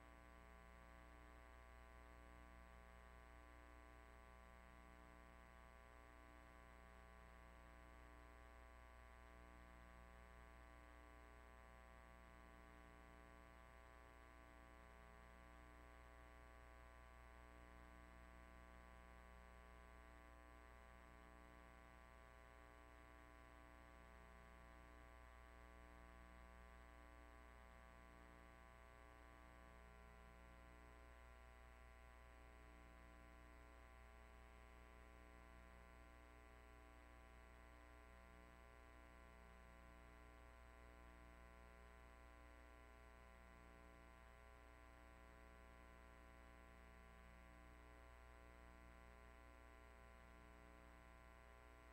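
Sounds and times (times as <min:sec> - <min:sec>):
faint electrical hum and buzz: 0:00.0 - 0:51.9.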